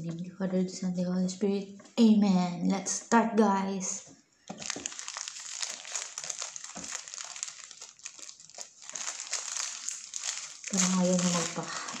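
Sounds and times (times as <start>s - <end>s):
paper wrapper crinkling: 4.5s - 12.0s.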